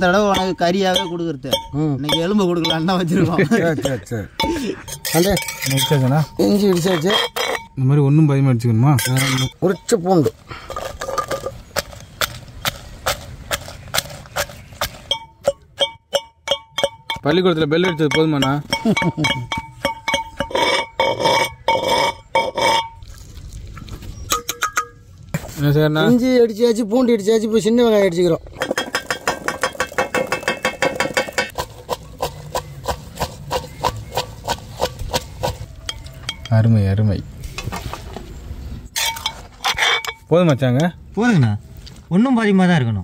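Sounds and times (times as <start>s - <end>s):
pestle pounding in a mortar: 11.8s - 23.0s, 28.6s - 35.7s.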